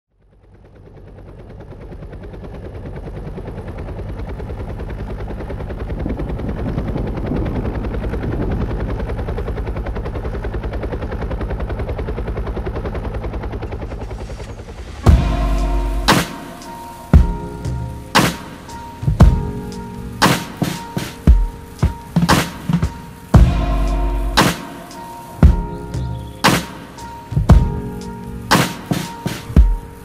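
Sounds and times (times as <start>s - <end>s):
helicopter rotor chopping: 0.2s - 30.0s.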